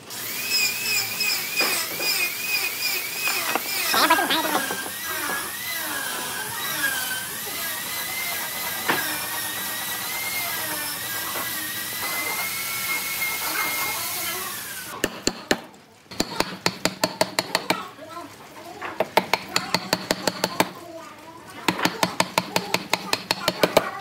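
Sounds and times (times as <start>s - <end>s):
power tool whining: 0.0s - 15.0s.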